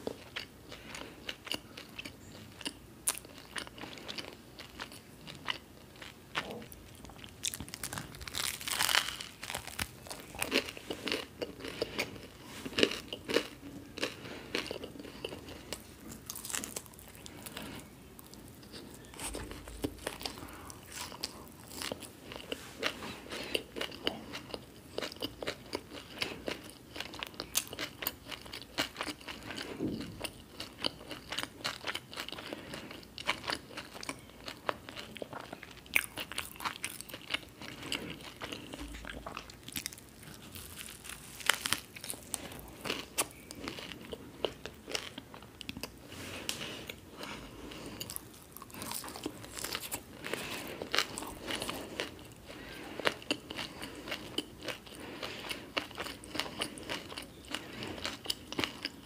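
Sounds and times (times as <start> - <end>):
biting and chewing: 0.0 - 59.0
crisp crunches: 6.6 - 24.5, 36.0 - 59.0.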